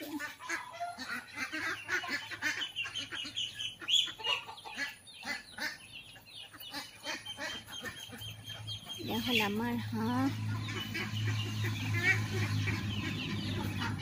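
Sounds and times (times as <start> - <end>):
ducks quacking: 0.0 - 14.0.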